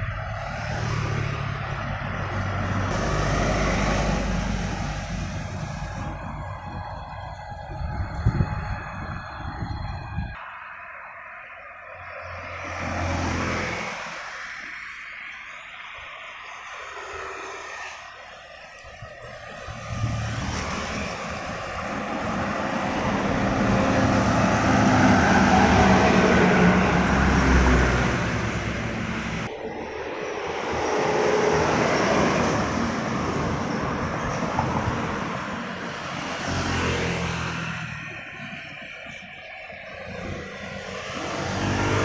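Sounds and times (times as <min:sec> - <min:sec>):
truck rumbling past: 0:00.0 - 0:10.3, 0:19.3 - 0:39.3
faint vehicles passing: 0:00.0 - 0:10.6, 0:11.6 - 0:42.0.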